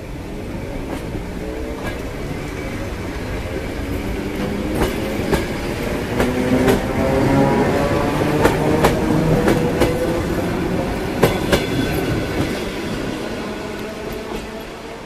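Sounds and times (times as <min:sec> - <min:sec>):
electric train running past: 0:00.0 - 0:15.0
train wheels clicking over rail joints: 0:00.8 - 0:07.2.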